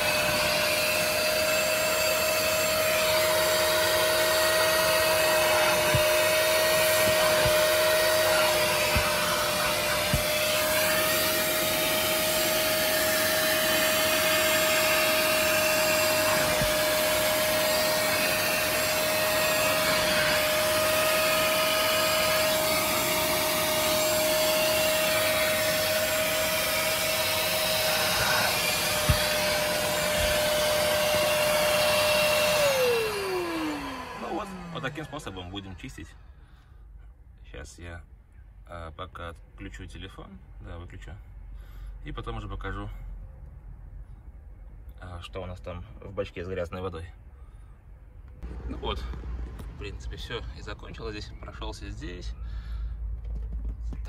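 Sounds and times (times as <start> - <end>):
carpet extractor motor whine: 0.0 - 35.8, 48.4 - 49.8.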